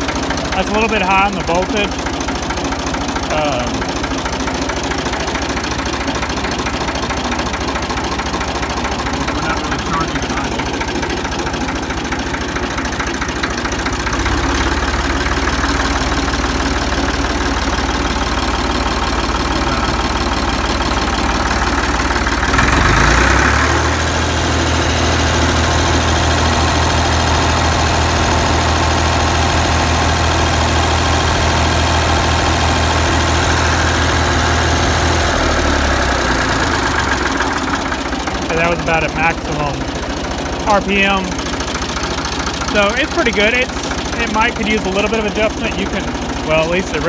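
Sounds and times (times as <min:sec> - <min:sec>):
tractor engine revving: 0:00.0 - 0:47.0.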